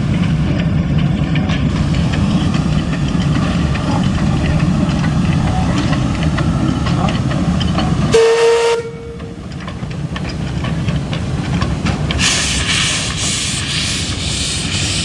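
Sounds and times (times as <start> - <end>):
steam locomotive rumble: 0.0 - 15.0
steam whistle blast: 8.1 - 9.2
steam hissing from cylinders: 11.5 - 15.0.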